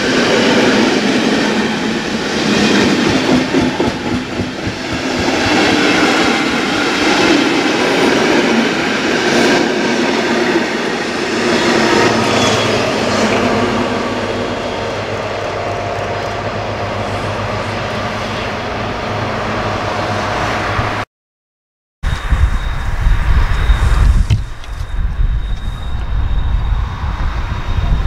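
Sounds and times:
diesel locomotive hum: 0:00.0 - 0:21.0.

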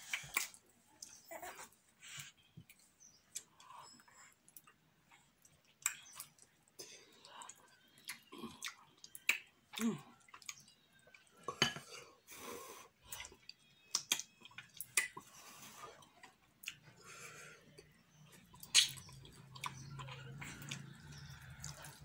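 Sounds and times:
lip-smacks: 0:00.0 - 0:01.2, 0:18.6 - 0:22.0
wet chewing and slurping: 0:18.4 - 0:22.0.

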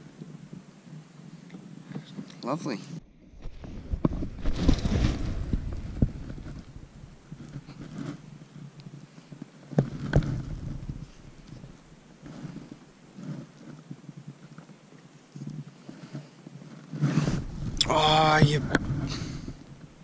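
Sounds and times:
low rumble: 0:03.0 - 0:07.4.

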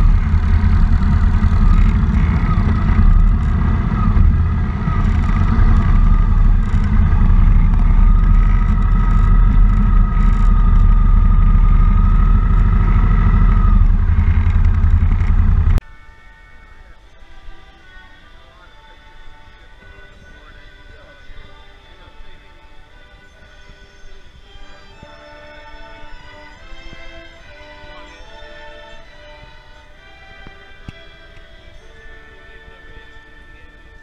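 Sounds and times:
motorcycle engine running: 0:00.0 - 0:15.8
high whine: 0:00.0 - 0:34.0.

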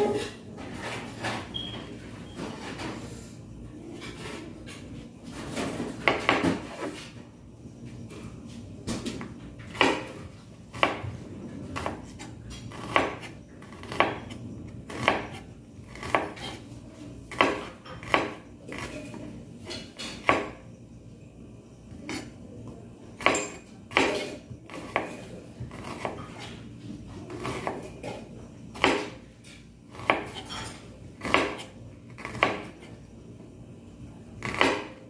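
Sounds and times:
knife chopping on cutting board: 0:05.7 - 0:07.0, 0:09.7 - 0:11.1, 0:11.8 - 0:16.6, 0:17.3 - 0:20.6, 0:23.2 - 0:26.5, 0:27.4 - 0:29.2, 0:29.9 - 0:32.9, 0:34.4 - 0:35.0.

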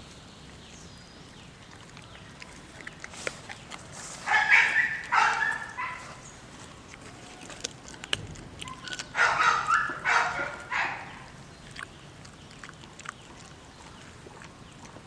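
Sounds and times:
dog chewing with clicks: 0:01.6 - 0:15.0
dog barking: 0:04.2 - 0:06.2, 0:08.7 - 0:11.3.

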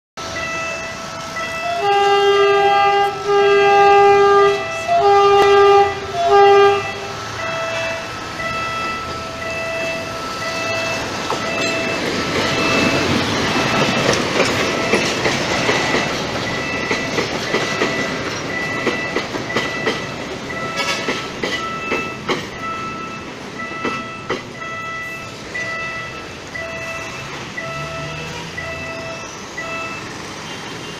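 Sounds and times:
level crossing warning beeps: 0:00.2 - 0:03.4, 0:04.6 - 0:30.9
diesel locomotive engine running: 0:00.2 - 0:30.6
locomotive horn blasts: 0:01.5 - 0:08.1
train wheels clattering on rail joints: 0:08.4 - 0:29.2.

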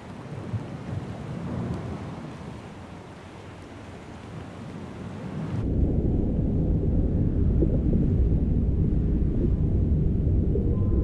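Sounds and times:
low underwater rumble: 0:05.6 - 0:11.0.

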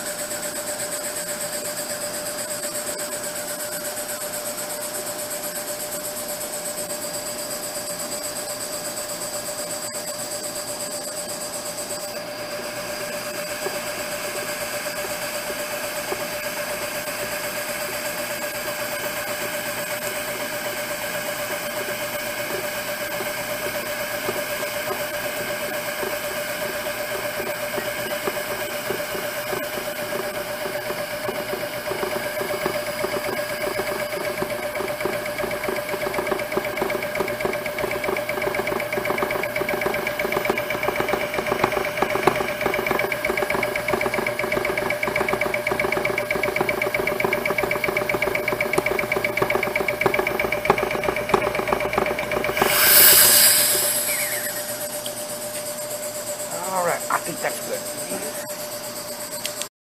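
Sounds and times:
compressor humming: 0:01.1 - 0:59.7
rapid pulsing: 0:12.9 - 0:55.1.

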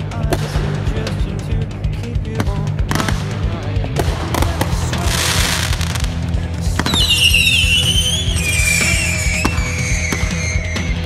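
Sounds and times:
music with steady bass: 0:00.0 - 0:11.0
firework bangs: 0:02.4 - 0:11.0
falling firework whistle: 0:06.8 - 0:11.0.

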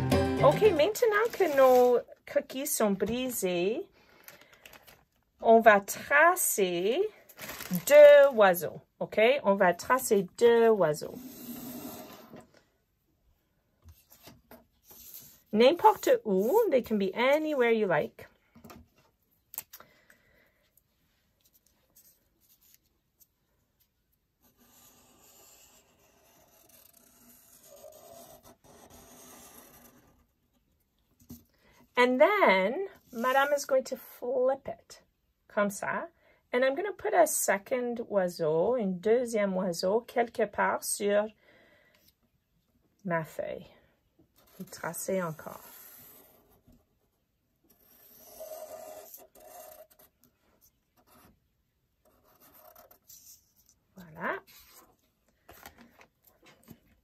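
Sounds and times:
marker scratching on paper: 0:24.4 - 0:30.3, 0:44.4 - 0:46.6, 0:47.7 - 0:50.1, 0:52.0 - 0:53.8
marker rubbing on paper: 0:47.7 - 0:50.1.

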